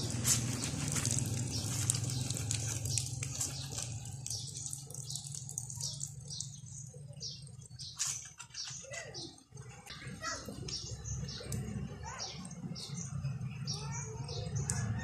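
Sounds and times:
water splashing into basin: 0:00.0 - 0:06.8
wet laundry being wrung: 0:00.0 - 0:06.8.

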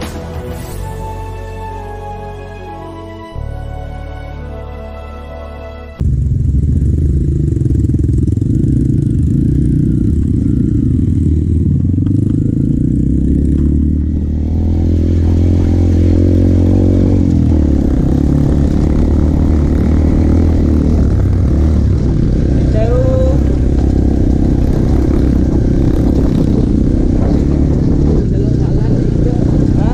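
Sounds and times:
motorcycle engine running: 0:06.0 - 0:29.9.

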